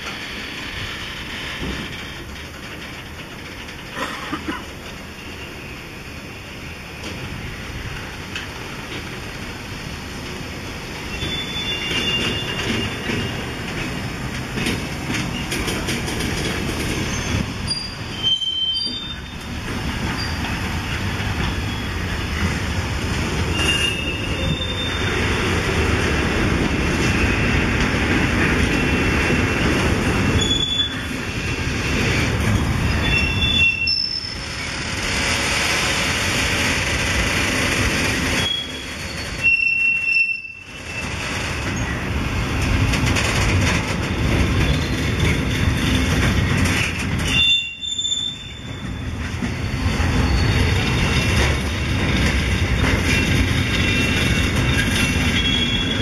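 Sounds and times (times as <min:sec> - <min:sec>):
train wheels rumbling on rails: 0:00.0 - 0:56.0
high wheel squeals: 0:11.1 - 0:13.5, 0:17.0 - 0:19.5, 0:21.6 - 0:22.1, 0:23.5 - 0:25.3, 0:28.7 - 0:31.2, 0:32.8 - 0:34.9, 0:38.3 - 0:41.2, 0:47.2 - 0:52.0, 0:52.6 - 0:56.0.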